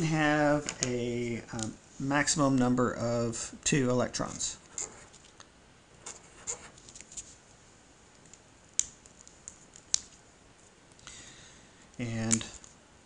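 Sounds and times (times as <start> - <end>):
marker scratching on paper: 4.7 - 5.2, 6.0 - 6.8.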